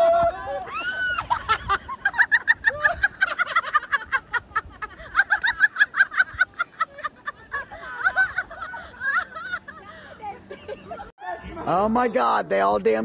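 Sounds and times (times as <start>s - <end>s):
person laughing in squealing bursts: 0.0s - 9.9s.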